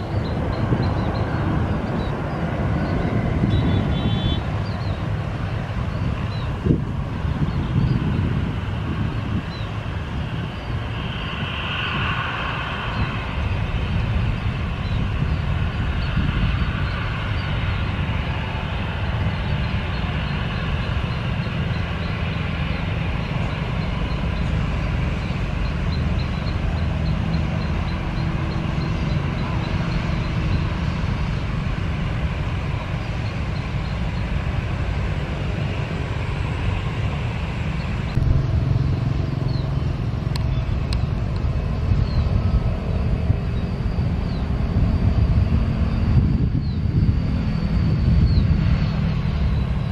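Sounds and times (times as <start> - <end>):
jet engines rumbling: 0.0 - 49.9
road vehicles passing: 0.0 - 49.9.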